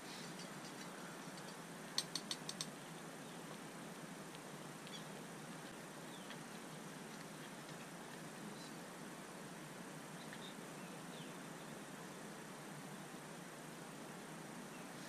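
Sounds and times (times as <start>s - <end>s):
faint steady hiss: 0.0s - 15.0s
sharp clicks: 1.4s - 2.7s.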